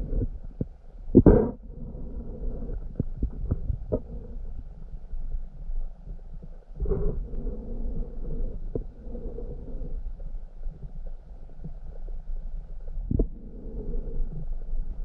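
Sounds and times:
muffled underwater rumble: 0.0 - 15.0
small underwater clicks and knocks: 2.7 - 6.8.

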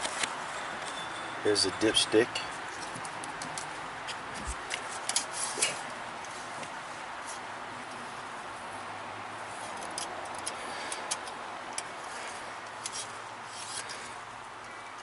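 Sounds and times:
light sharp clicks and rubbing: 2.3 - 8.0, 9.5 - 15.0.

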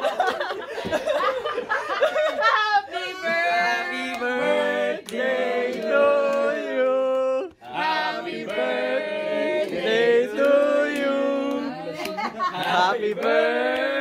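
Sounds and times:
group singing unaccompanied: 2.9 - 14.0.

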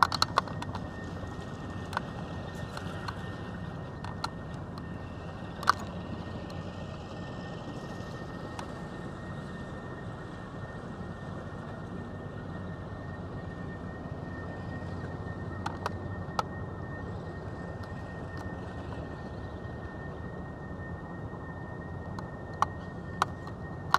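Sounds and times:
faint high whine: 0.0 - 23.9
low rumble in vehicle cabin: 0.0 - 23.9.

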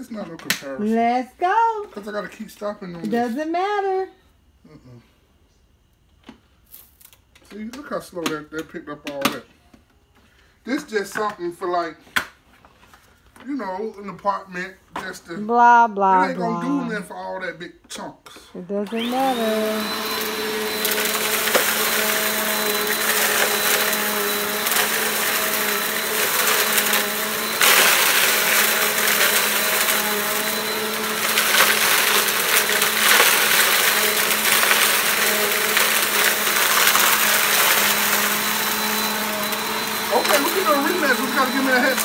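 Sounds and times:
vacuum cleaner motor whine: 16.0 - 17.5, 18.6 - 42.0
grit crackling into vacuum: 19.0 - 42.0.

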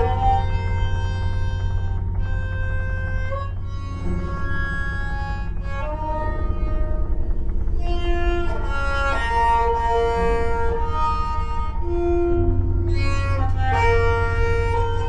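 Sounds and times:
bowed banjo notes: 0.0 - 15.0
steady low hum: 0.0 - 15.0.

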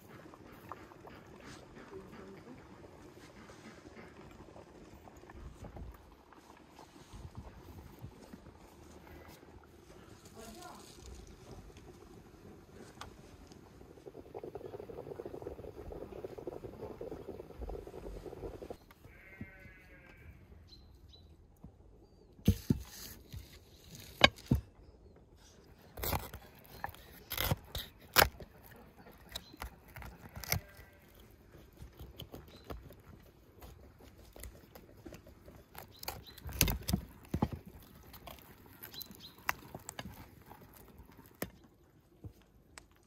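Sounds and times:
hands tearing roast duck: 25.8 - 41.6.

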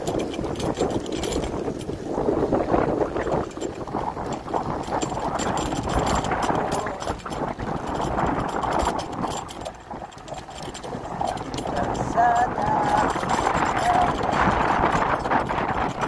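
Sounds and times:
bicycle tyres rolling on pavement: 0.0 - 16.0
wind buffeting microphone: 0.0 - 16.0.

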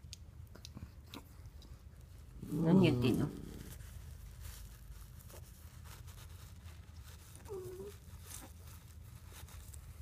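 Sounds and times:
dog chewing tissue paper: 3.1 - 10.0.

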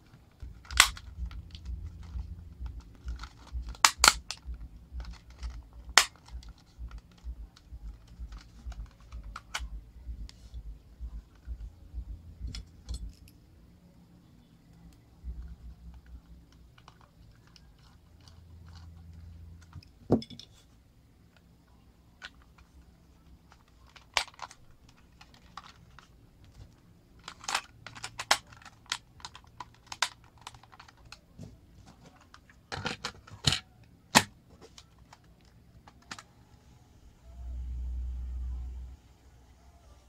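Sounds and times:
plastic parts snapping together: 0.4 - 9.7, 23.5 - 26.1, 27.2 - 31.2, 32.1 - 36.3.

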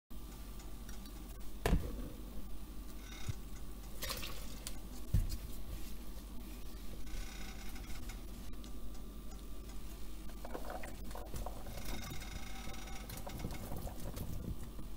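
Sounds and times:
water pouring into a bowl: 4.0 - 4.6.

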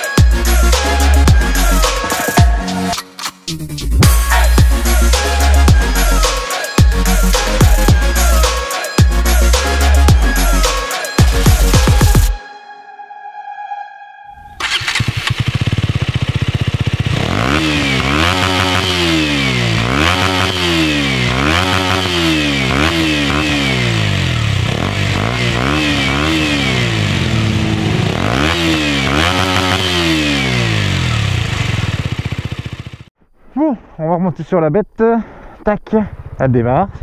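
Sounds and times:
motorcycle engine revving: 0.2 - 2.6, 14.4 - 33.2.

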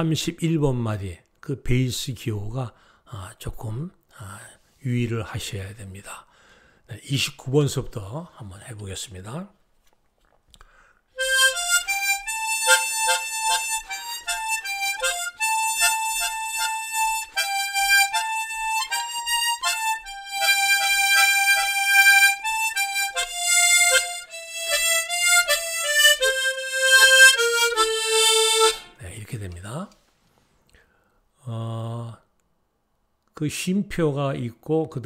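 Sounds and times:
harmonica bass-chord stabs: 11.2 - 29.0
harmonica melody: 11.2 - 29.0.

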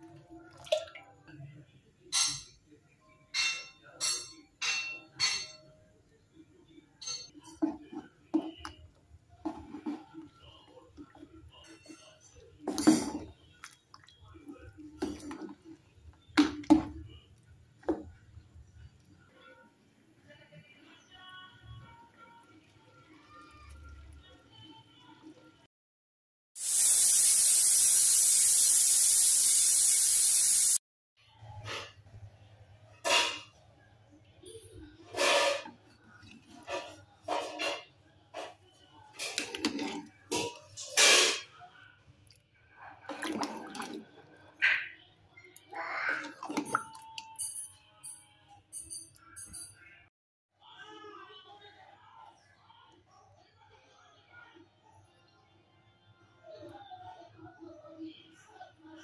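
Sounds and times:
pressure cooker steam hissing: 26.6 - 30.8.

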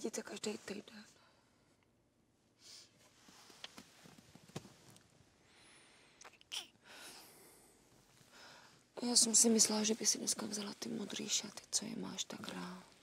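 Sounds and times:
soft rustles with clicks: 3.0 - 5.2
faint breathing: 5.4 - 6.2, 6.8 - 8.9.

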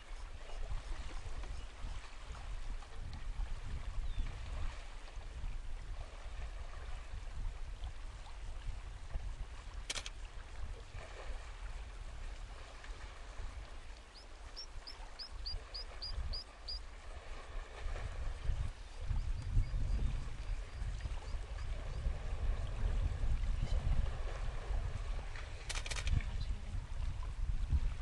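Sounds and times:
sharp click: 9.9 - 10.2, 25.7 - 26.2
bird chirping: 14.1 - 16.8.

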